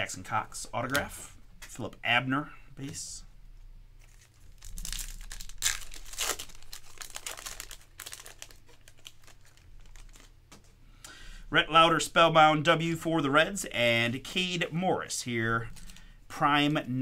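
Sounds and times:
foil wrapper crinkling: 4.0s - 10.6s.

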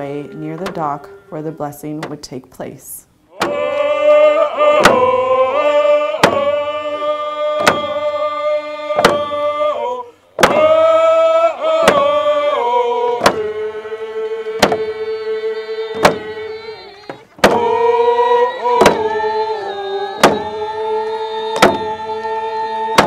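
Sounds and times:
group chanting in unison: 0.0s - 1.7s, 3.3s - 23.0s
hand drums beating slowly: 6.2s - 6.6s, 15.9s - 17.7s.

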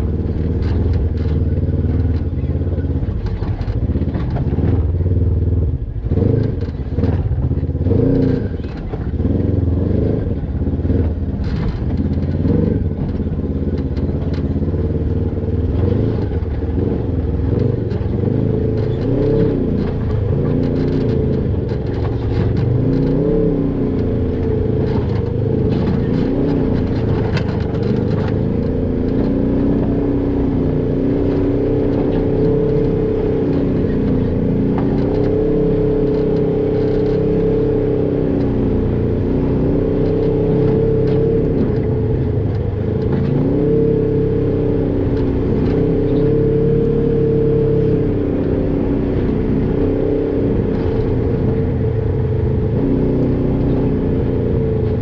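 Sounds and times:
off-road vehicle engine revving: 0.0s - 55.0s.

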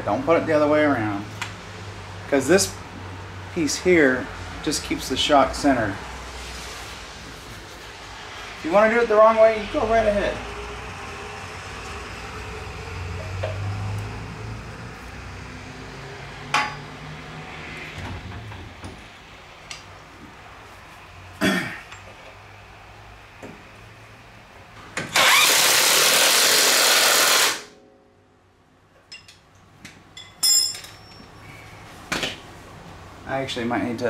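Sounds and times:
power tool running: 25.1s - 27.7s.

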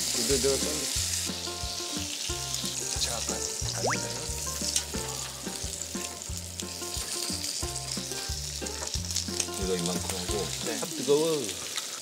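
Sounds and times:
steak sizzling in a pan: 0.0s - 12.0s
light background tune: 0.2s - 10.8s.

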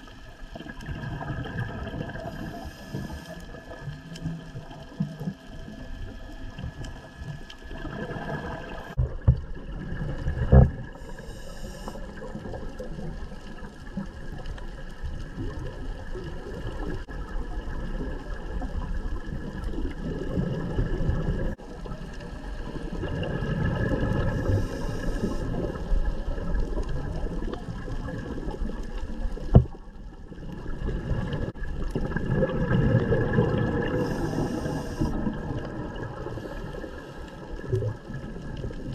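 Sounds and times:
rumbling exhaled bubbles: 0.0s - 38.9s
diver inhaling hiss: 2.2s - 3.5s, 10.9s - 12.3s, 24.2s - 25.9s, 33.8s - 35.3s, 36.2s - 37.6s.

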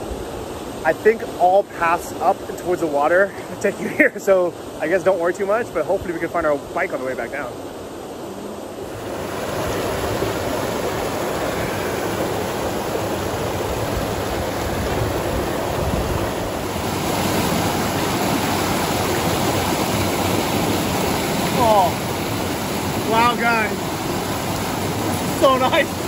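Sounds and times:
water rushing down rocks: 8.8s - 26.0s.

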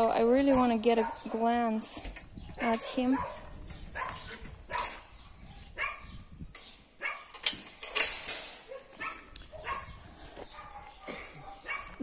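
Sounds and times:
dogs barking: 0.9s - 1.6s, 2.5s - 6.2s, 7.0s - 7.4s, 8.6s - 12.0s.

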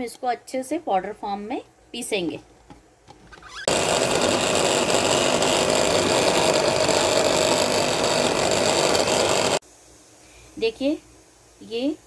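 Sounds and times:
mixer grinder running: 3.7s - 9.6s.

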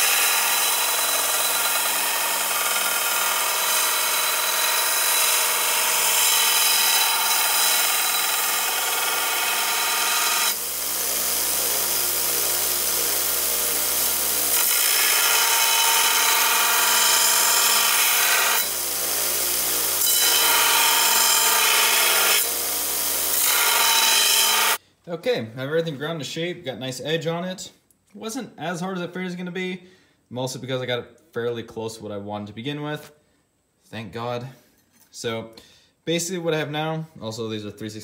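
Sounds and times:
belt grinder grinding steel blade: 0.0s - 24.8s.

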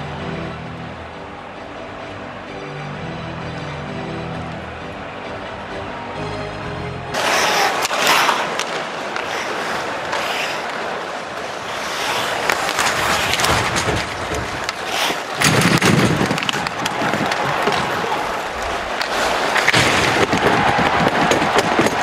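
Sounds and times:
arena crowd noise: 0.0s - 22.0s
sticks and puck clacking: 7.1s - 22.0s
players thumping into boards: 7.2s - 22.0s
skate blades scraping ice: 7.2s - 22.0s.

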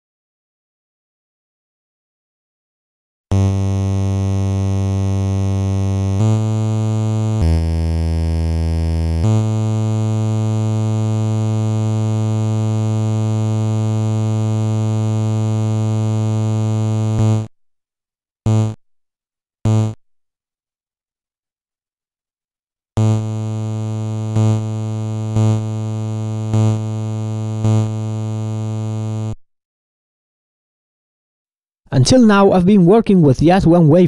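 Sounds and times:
low synth tone: 3.3s - 17.5s, 23.0s - 29.4s.

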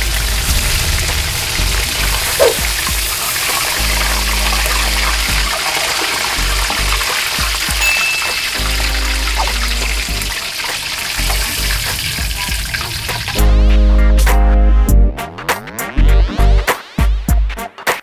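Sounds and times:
chicken deep-frying in oil: 0.0s - 13.6s
background music: 0.0s - 18.0s.

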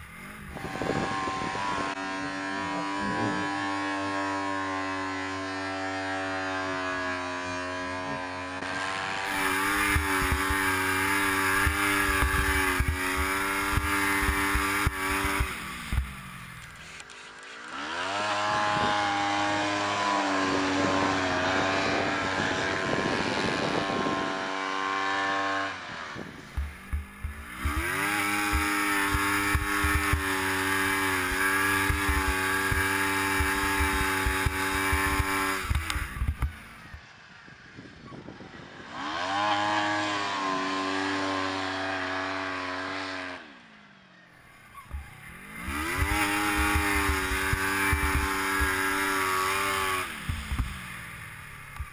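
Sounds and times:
snowmobile engine revving: 0.0s - 37.0s, 38.6s - 43.7s, 44.5s - 51.9s.

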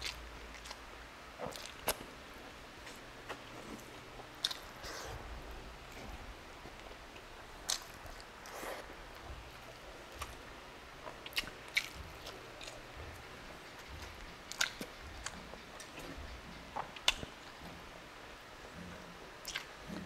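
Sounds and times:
close chewing: 0.0s - 2.1s, 2.8s - 17.8s, 19.4s - 20.0s
wet mouth clicks and smacks: 4.4s - 4.7s, 7.7s - 8.0s, 11.0s - 12.8s, 13.8s - 17.3s, 19.4s - 19.7s.

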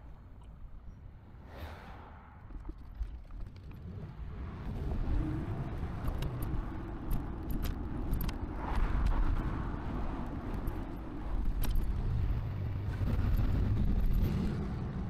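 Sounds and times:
wind rumble: 1.2s - 15.0s
road traffic noise: 3.6s - 15.0s.

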